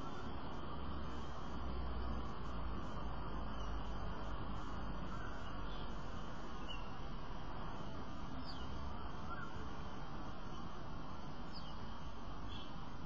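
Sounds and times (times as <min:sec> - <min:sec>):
faint bird calls: 0:00.0 - 0:00.5, 0:04.6 - 0:07.0, 0:08.3 - 0:09.7
outdoor hum and hiss: 0:00.0 - 0:13.0.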